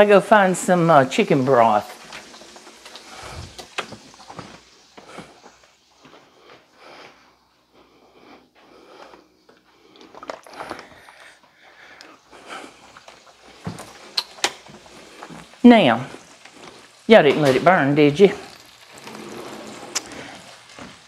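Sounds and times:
cutlets sizzling in oil: 0.0s - 6.4s, 11.8s - 21.0s.

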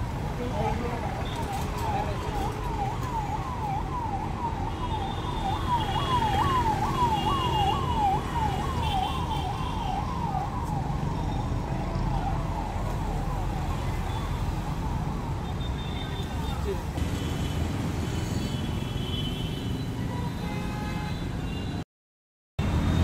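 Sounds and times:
low traffic rumble: 0.0s - 19.1s
siren wailing yelp: 0.7s - 15.4s.

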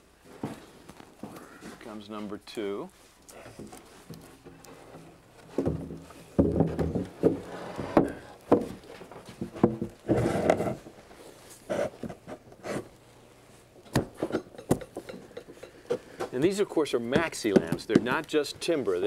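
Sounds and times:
wooden knocks and bumps: 5.5s - 10.6s.

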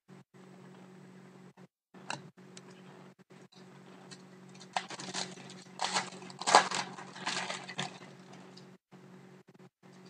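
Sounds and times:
foil pack crinkling: 4.5s - 8.6s.

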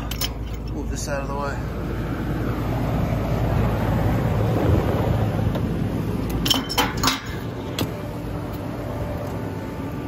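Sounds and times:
pool pump motor humming: 1.6s - 10.0s.

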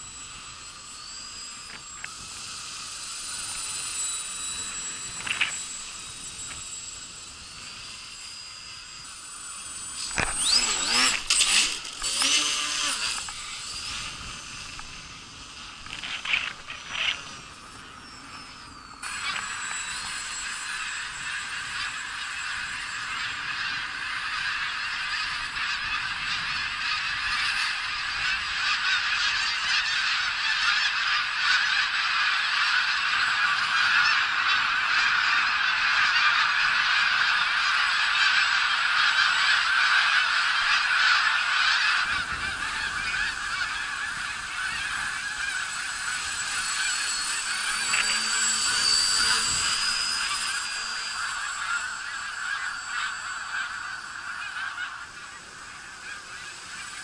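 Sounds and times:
electric motor whine: 0.0s - 57.0s
flock of geese honking: 21.0s - 57.0s.

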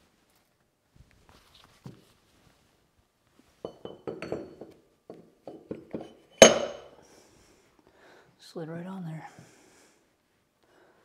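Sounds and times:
sharp metallic clank: 6.0s - 6.9s.

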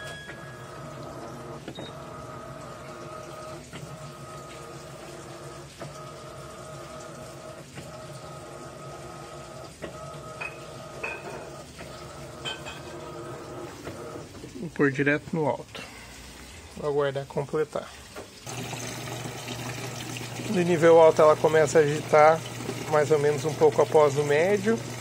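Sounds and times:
washing machine agitating: 0.0s - 25.0s
control panel beeps: 1.7s - 2.0s.

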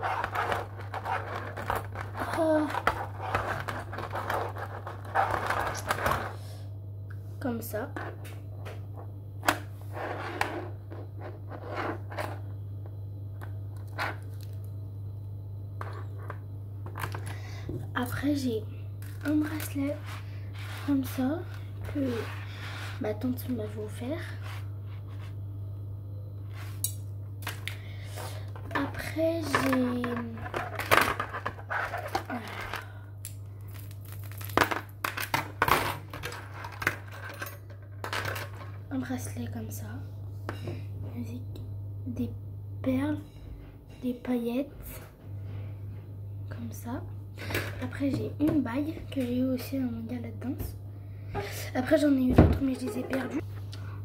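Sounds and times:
scraping and rustling: 0.0s - 6.4s, 9.8s - 12.5s, 19.0s - 23.4s, 28.1s - 32.9s
steady low hum: 0.0s - 54.0s.

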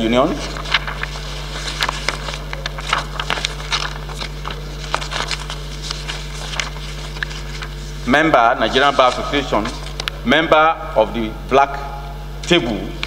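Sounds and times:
paper rustling and crackling: 0.0s - 10.2s
low electrical hum: 0.0s - 13.0s.

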